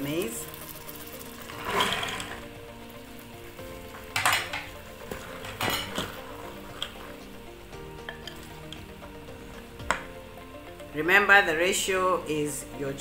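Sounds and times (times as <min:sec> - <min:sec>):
faint sizzle: 0:00.0 - 0:13.0
wooden spoon stirring in a pot: 0:03.5 - 0:07.4.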